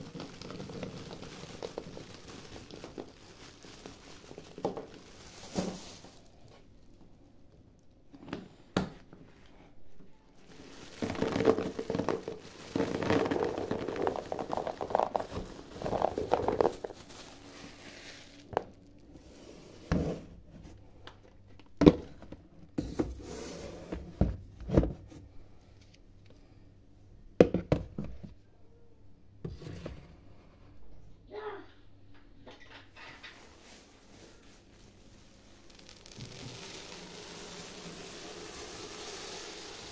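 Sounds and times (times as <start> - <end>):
dried fruit rattling in plastic jars: 0.0 - 6.3, 10.4 - 18.8, 35.2 - 39.9.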